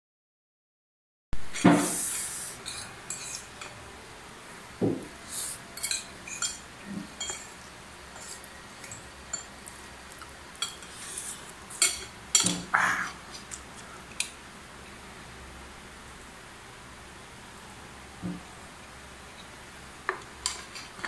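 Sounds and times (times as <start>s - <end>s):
cutlery clinking in ceramic bowl: 2.6s - 3.8s, 5.7s - 7.6s, 8.2s - 10.9s.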